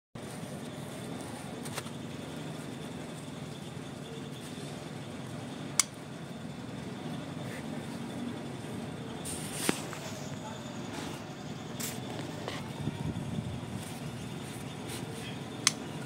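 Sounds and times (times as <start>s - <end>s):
low background hum: 0.2s - 16.0s
sharp click: 15.6s - 15.8s.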